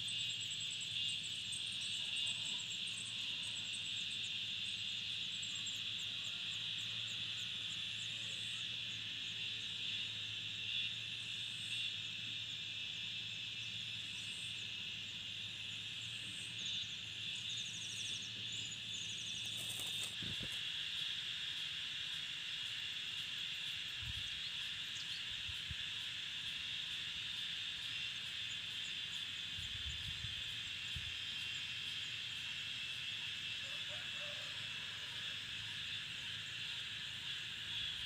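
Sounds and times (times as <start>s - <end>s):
insect chorus trilling: 0.0s - 38.0s
bird rustling leaving nest: 19.4s - 20.6s.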